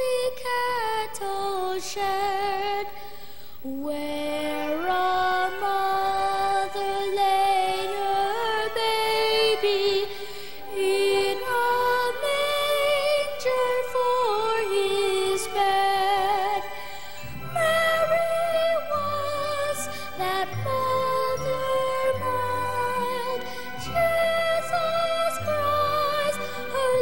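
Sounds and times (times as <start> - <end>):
boy singing into a microphone: 0.0 - 3.0, 3.6 - 10.1.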